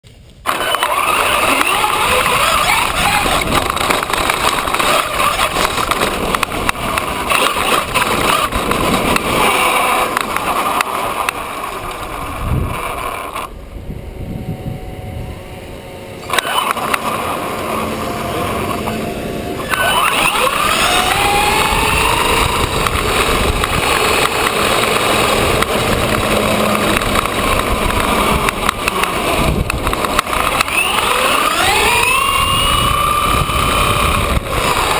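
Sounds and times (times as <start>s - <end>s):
tyre noise on ground: 0.0s - 13.5s
wind on camera: 0.2s - 34.9s
electric motor whining: 0.5s - 34.9s.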